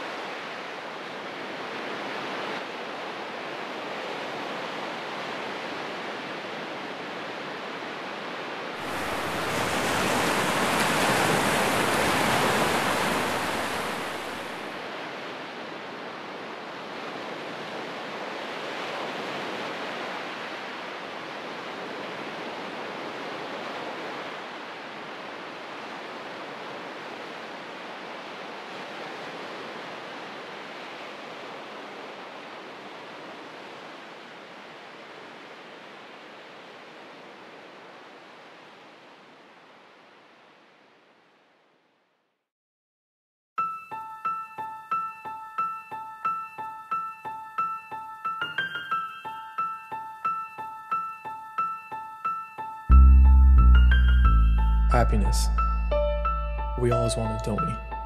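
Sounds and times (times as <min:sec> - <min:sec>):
waves on rocky shore: 0:00.0 - 0:40.3.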